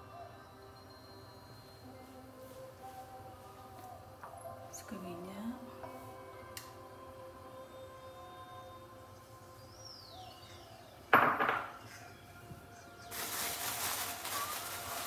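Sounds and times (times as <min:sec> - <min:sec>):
faint bird chirp: 0:07.4 - 0:13.4
kitchenware knock: 0:11.1 - 0:11.8
steady hiss: 0:12.0 - 0:15.0.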